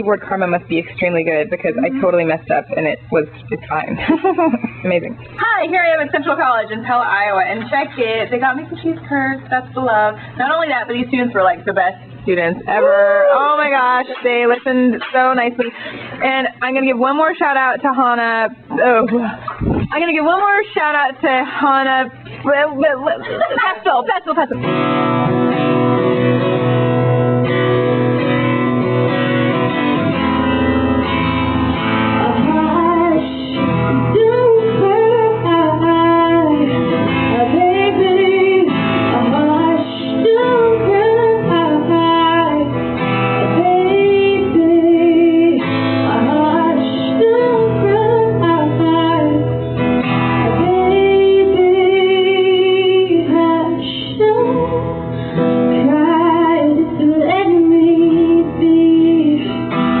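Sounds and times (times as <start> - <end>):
acoustic guitar: 0.0 - 60.0
woman singing: 1.6 - 2.5, 32.1 - 49.7, 50.4 - 55.1, 55.7 - 60.0.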